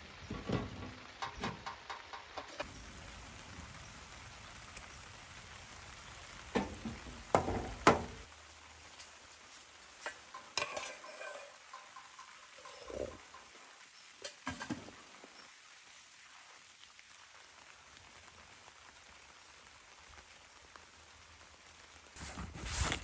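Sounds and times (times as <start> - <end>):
metal spoon clinking in pot: 10.4 - 12.9.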